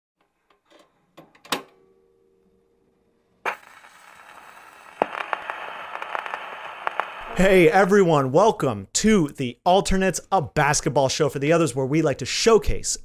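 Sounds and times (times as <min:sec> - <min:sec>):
steady hiss with crackling clicks: 0:03.4 - 0:09.5.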